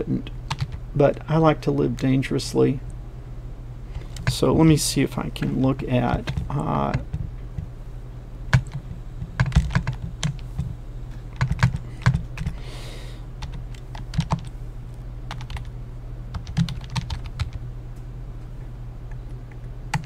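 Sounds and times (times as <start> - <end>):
keyboard typing: 0.5 - 0.8, 6.1 - 7.7, 8.5 - 10.7, 11.3 - 12.6, 13.4 - 14.5, 15.3 - 15.7, 16.3 - 17.6, 19.1 - 20.0.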